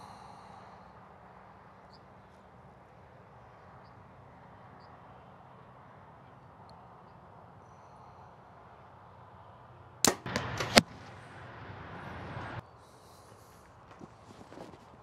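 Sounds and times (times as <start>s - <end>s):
bowstring snap: 10.0s - 10.9s
arrow striking foam target: 10.0s - 11.2s.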